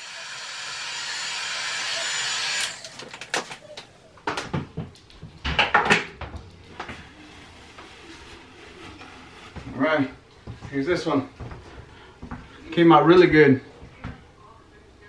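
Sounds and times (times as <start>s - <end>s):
heat gun blowing: 0.0s - 3.6s.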